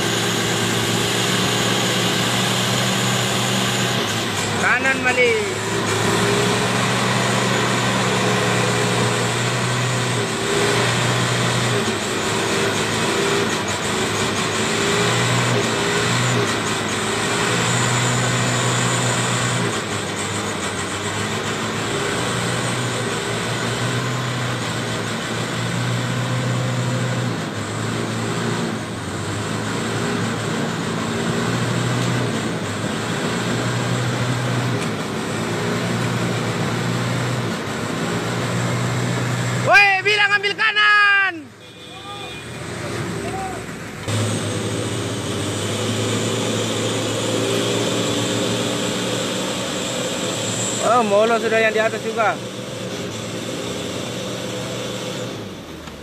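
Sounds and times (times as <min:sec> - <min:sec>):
truck diesel engine under load: 0:00.0 - 0:56.0.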